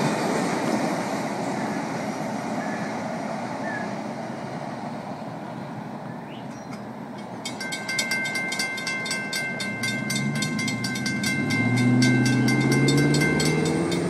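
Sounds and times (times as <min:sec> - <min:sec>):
crossing warning bell ringing: 0:06.5 - 0:14.0
truck engine accelerating: 0:07.9 - 0:14.0.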